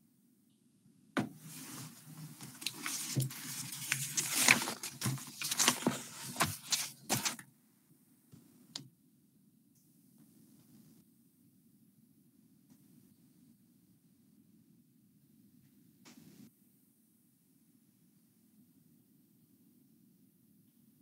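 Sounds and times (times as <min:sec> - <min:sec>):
rustling and crinkling: 0:01.4 - 0:07.4.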